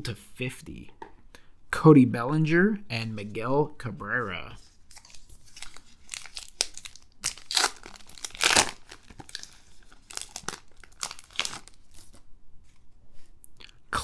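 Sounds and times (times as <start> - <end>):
foil wrapper tearing and crinkling: 4.9 - 12.2.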